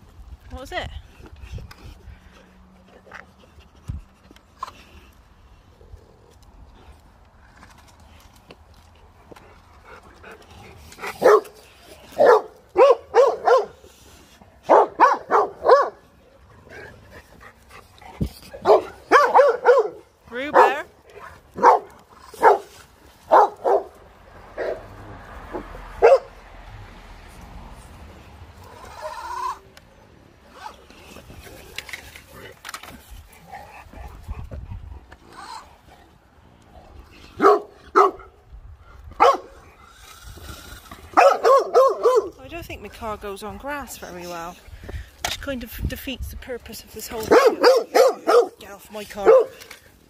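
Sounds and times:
dog barking excitedly: 0:11.0 - 0:11.6, 0:12.2 - 0:13.8, 0:14.7 - 0:16.0, 0:18.6 - 0:20.9, 0:21.6 - 0:22.7, 0:23.3 - 0:23.9, 0:26.0 - 0:26.3, 0:37.4 - 0:38.3, 0:39.2 - 0:39.6, 0:41.1 - 0:42.4, 0:47.2 - 0:48.6, 0:49.2 - 0:49.7.

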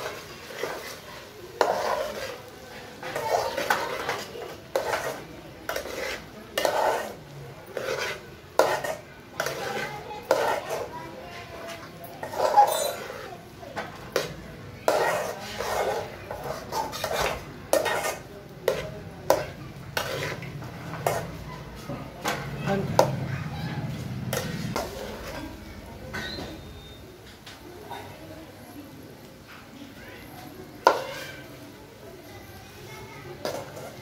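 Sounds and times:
spatula scraping metal pot: 0:00.0 - 0:25.6, 0:30.8 - 0:31.5, 0:33.4 - 0:34.0.

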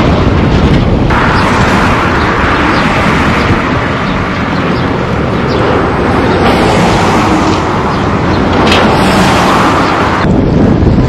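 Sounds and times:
excavator engine rumble: 0:00.0 - 0:11.0.

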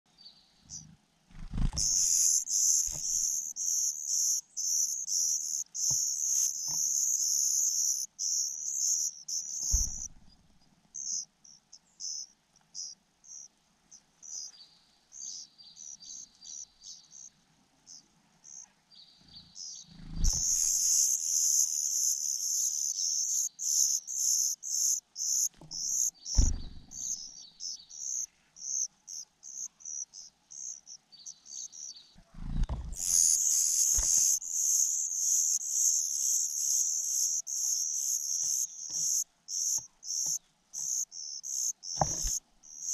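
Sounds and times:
nestlings chirping: 0:00.7 - 0:17.3, 0:17.9 - 0:42.9
dull thumps: 0:09.6 - 0:10.4, 0:25.6 - 0:27.2, 0:32.5 - 0:33.0, 0:42.0 - 0:42.4.

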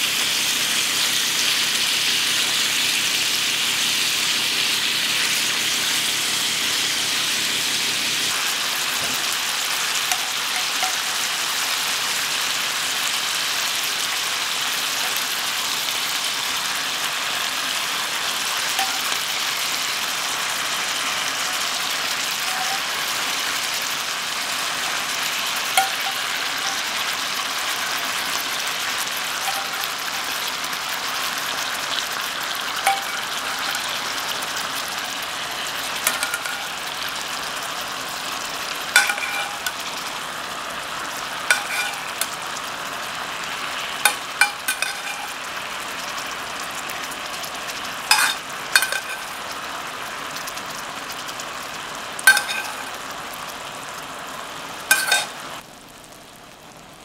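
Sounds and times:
chicken sizzling in hot oil: 0:00.0 - 0:57.0
metal spoon clinking on pan: 0:08.4 - 0:11.7, 0:15.0 - 0:15.7, 0:18.6 - 0:19.8, 0:22.2 - 0:23.4, 0:24.6 - 0:31.4, 0:32.8 - 0:34.4, 0:35.7 - 0:37.3, 0:38.9 - 0:40.1, 0:41.4 - 0:42.4, 0:44.0 - 0:45.7, 0:48.1 - 0:49.5, 0:52.3 - 0:53.0, 0:54.9 - 0:55.4.

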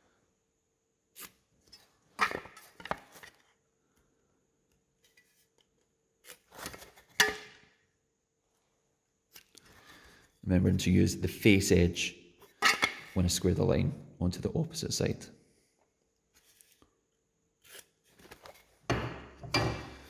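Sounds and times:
wood knocking and scraping on workbench: 0:18.9 - 0:20.0.

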